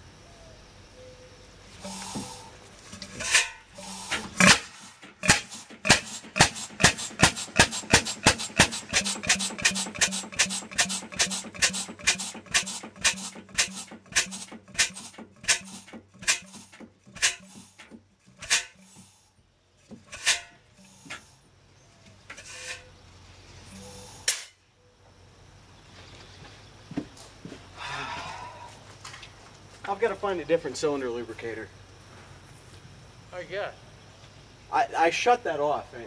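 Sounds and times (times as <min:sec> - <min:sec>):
stationary engine exhaust pops: 0:01.8 - 0:19.1.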